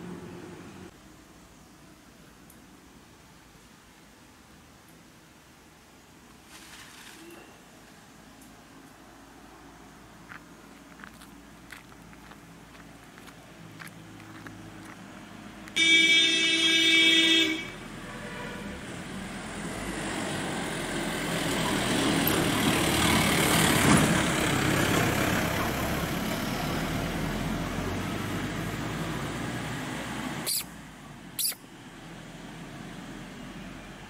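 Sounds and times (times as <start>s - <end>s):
vehicle horn: 15.8s - 18.8s
truck driving past: 17.8s - 30.9s.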